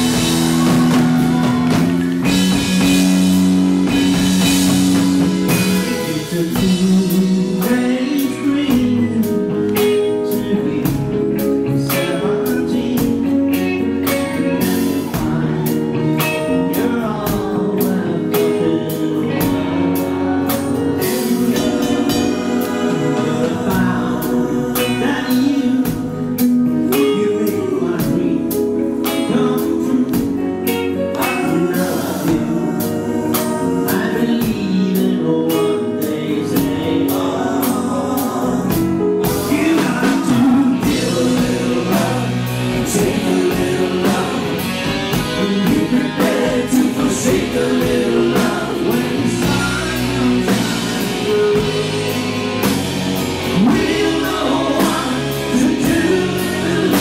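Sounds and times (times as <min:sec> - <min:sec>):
steady drum beat: 0:00.0 - 0:09.0, 0:19.4 - 0:27.1, 0:36.6 - 0:57.0
live pop-rock band: 0:00.0 - 0:57.0
man singing: 0:00.0 - 0:57.0.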